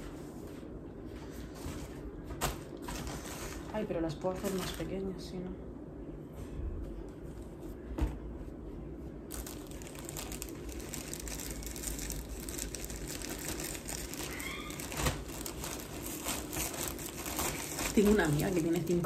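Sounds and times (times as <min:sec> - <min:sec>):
clothes rustling and crinkling: 0:00.0 - 0:05.1, 0:06.4 - 0:19.0.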